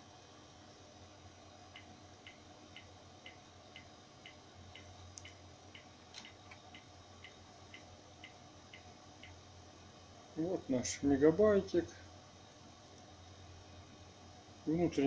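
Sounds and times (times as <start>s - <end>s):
faint regular ticking: 1.7s - 9.5s.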